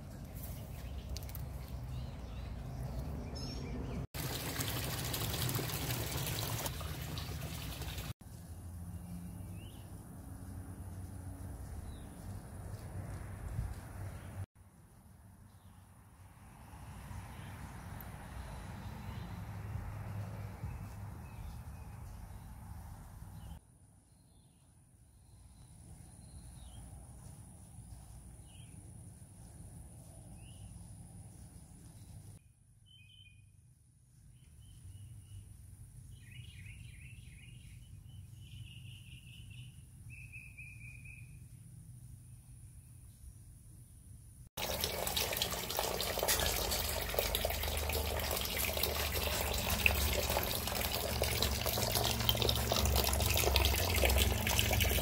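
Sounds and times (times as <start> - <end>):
fountain water splashing: 4.2 - 8.1, 44.6 - 55.0.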